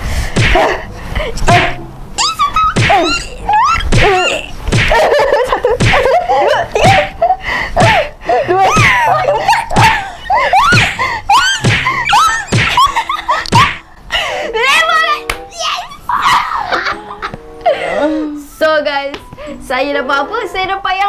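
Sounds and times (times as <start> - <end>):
hand slaps: 0.4 - 0.7, 3.9 - 5.2, 5.8 - 6.2, 11.6 - 12.9
women laughing and shrieking: 2.2 - 13.9, 16.0 - 17.3.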